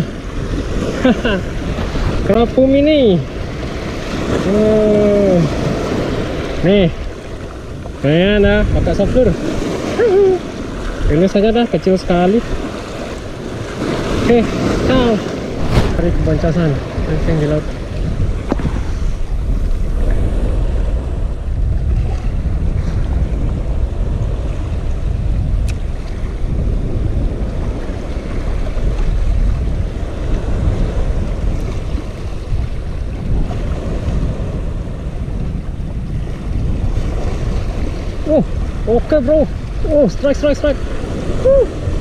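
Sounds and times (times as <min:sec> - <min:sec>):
small waves washing against rocks: 0:00.0 - 0:21.2
wind buffeting microphone: 0:00.0 - 0:42.0.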